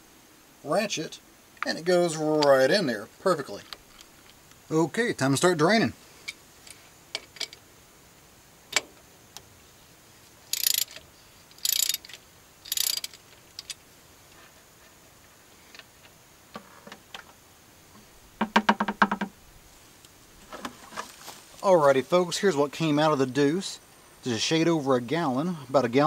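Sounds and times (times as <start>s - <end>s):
ratchet clicking: 10.5s - 13.8s.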